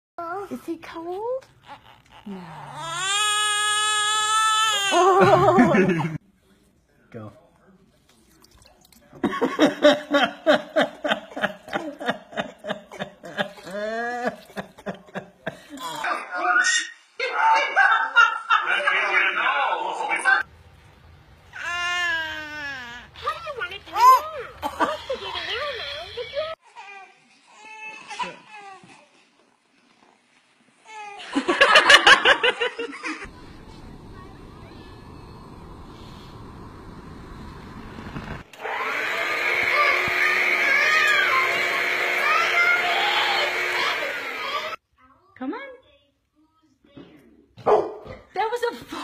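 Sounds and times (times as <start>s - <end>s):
adult laughing hard: 5.0s - 6.2s
hearty laughter: 5.1s - 6.2s, 9.2s - 15.8s, 31.2s - 33.3s.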